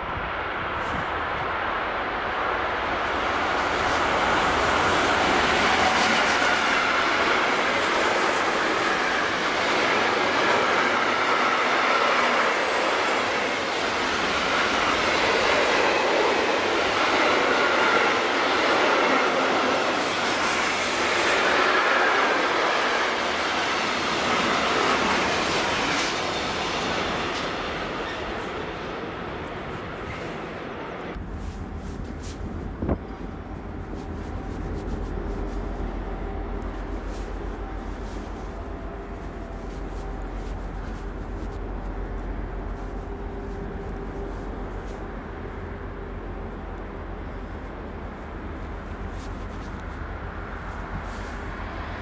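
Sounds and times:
freight train rolling past: 0:00.0 - 0:52.0
clickety-clack over rail joints: 0:03.0 - 0:28.9.

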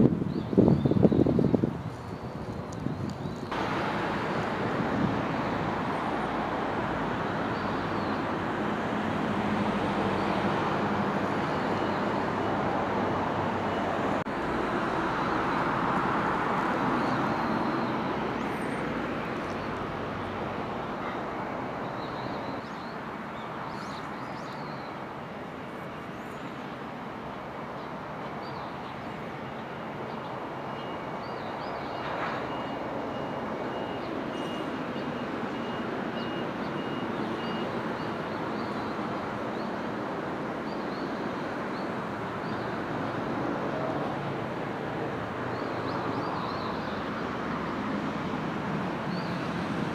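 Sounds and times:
road traffic noise: 0:00.0 - 0:49.9
vehicle passing: 0:03.5 - 0:22.3.

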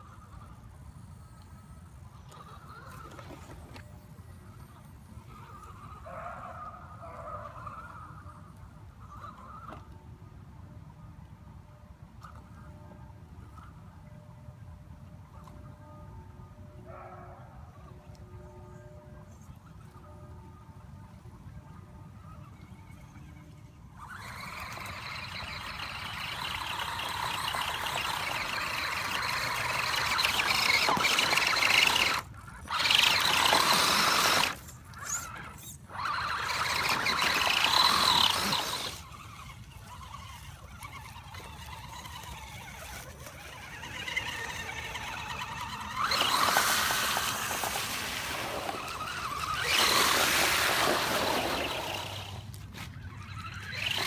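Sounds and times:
electric motor whining: 0:22.4 - 0:54.0.

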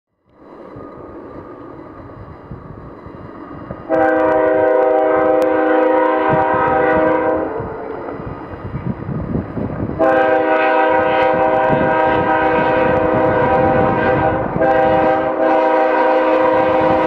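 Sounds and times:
diesel locomotive running: 0:00.1 - 0:17.0
locomotive air horn blast: 0:03.9 - 0:08.2, 0:10.0 - 0:17.0.

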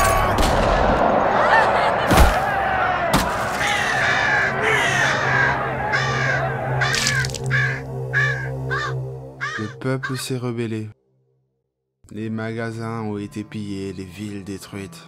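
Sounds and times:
crowd shouting: 0:00.0 - 0:09.0
harsh calls: 0:01.3 - 0:10.3.

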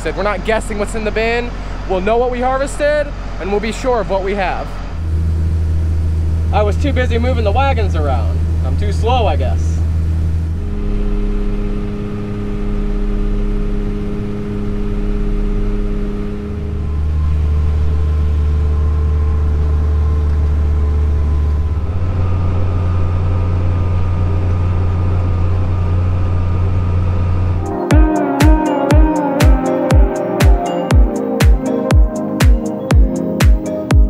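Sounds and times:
tractor engine drone from cab: 0:00.0 - 0:08.6, 0:09.8 - 0:27.7
steady tones: 0:27.6 - 0:34.0.

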